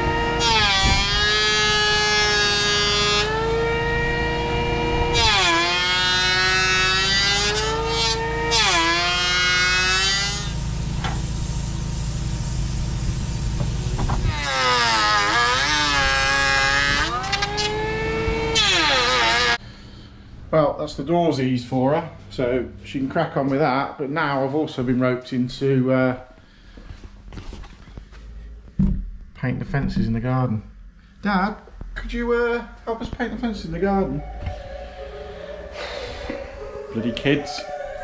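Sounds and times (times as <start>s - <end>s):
electric planer cutting wood: 0.0s - 10.8s, 14.2s - 19.6s.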